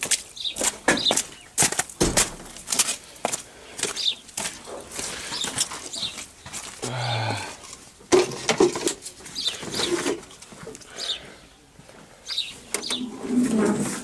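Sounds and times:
birds chirping: 0:00.3 - 0:02.2, 0:03.0 - 0:07.7, 0:09.2 - 0:13.4.

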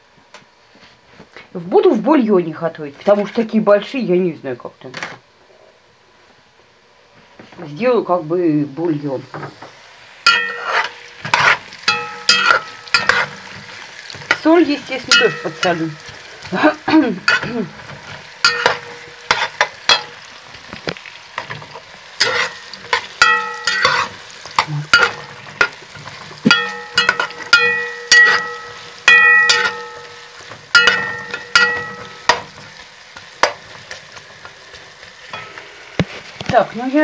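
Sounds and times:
carrots sizzling in hot oil: 0:07.2 - 0:37.0
spoon scraping and knocking pot: 0:10.3 - 0:16.2, 0:17.2 - 0:20.2, 0:21.4 - 0:33.9.

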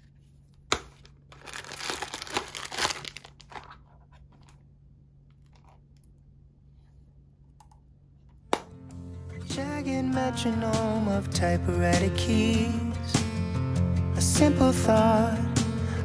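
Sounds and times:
plastic wrapping crinkling: 0:00.0 - 0:04.7.

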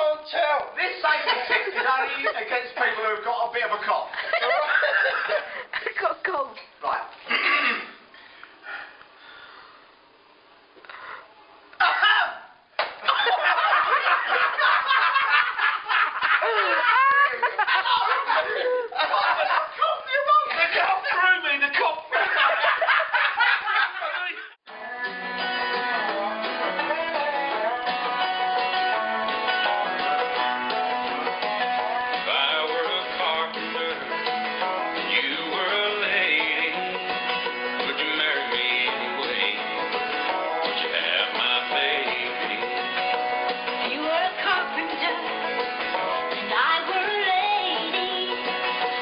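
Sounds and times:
people laughing and talking: 0:00.8 - 0:06.2, 0:13.1 - 0:24.6
bluegrass music with plucked strings: 0:24.7 - 0:49.0.

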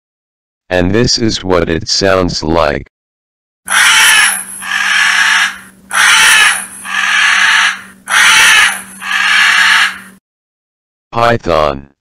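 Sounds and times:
porcupine harsh calls: 0:03.7 - 0:10.2
steady low hum: 0:03.7 - 0:10.2.

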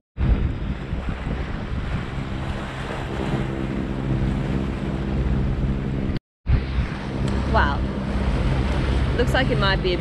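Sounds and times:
boat engine running: 0:00.2 - 0:10.0
water along hull: 0:00.2 - 0:10.0
wind on microphone: 0:00.2 - 0:10.0.

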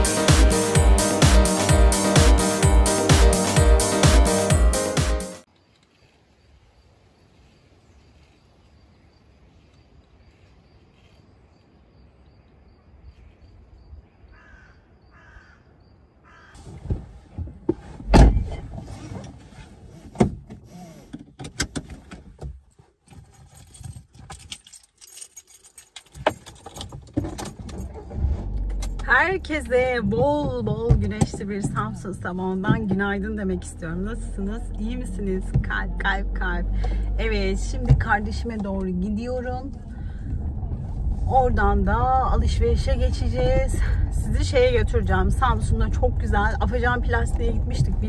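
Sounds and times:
crow cawing: 0:14.3 - 0:16.6
keys jangling: 0:23.1 - 0:29.0
clicks and knocks in a car: 0:29.9 - 0:33.2.

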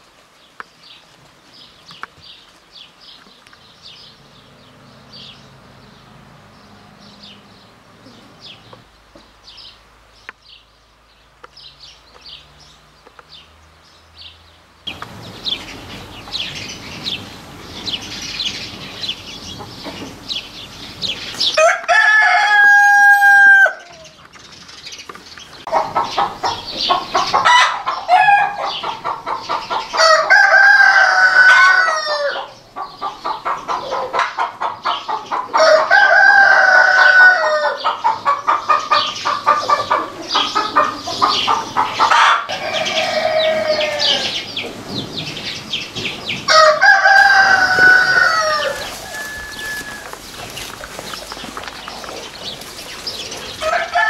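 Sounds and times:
chickens clucking: 0:06.0 - 0:09.4, 0:14.9 - 0:54.0
roosters crowing: 0:14.9 - 0:24.3, 0:25.6 - 0:54.0.

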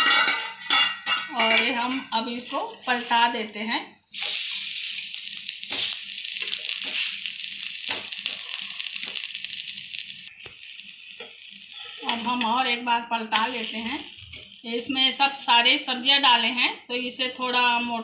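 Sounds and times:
steel spatula scraping and tapping: 0:00.0 - 0:03.6, 0:11.2 - 0:14.6
flatbread sizzling on a hot pan: 0:04.2 - 0:15.6.

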